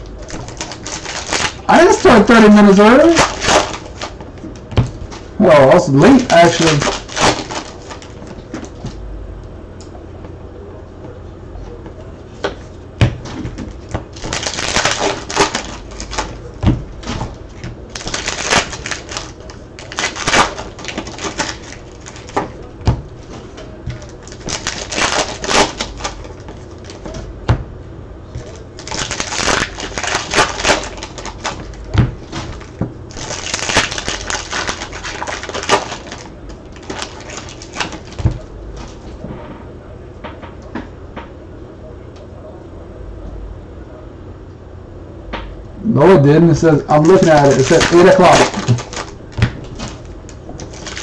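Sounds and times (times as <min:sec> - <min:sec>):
cards crinkling and clicking: 0:00.0 - 0:05.2, 0:05.9 - 0:09.0, 0:13.6 - 0:22.7, 0:23.3 - 0:27.2, 0:28.4 - 0:39.0, 0:46.9 - 0:51.0.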